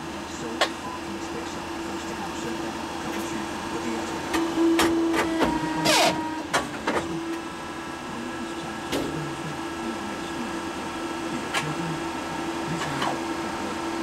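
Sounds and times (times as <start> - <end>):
paper cutter humming: 0.0 - 14.0.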